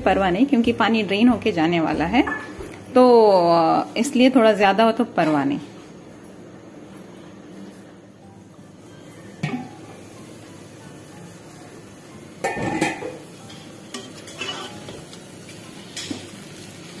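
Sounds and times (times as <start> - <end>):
faint sizzle of frying: 7.7 - 17.0
spoon clanking against a pan: 12.4 - 15.1.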